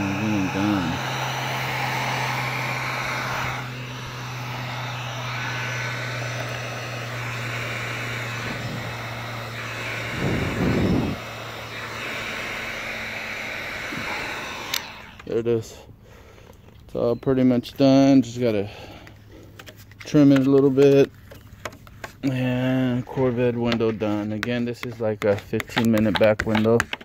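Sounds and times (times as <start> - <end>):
heat gun fan blowing: 0.0 - 26.8.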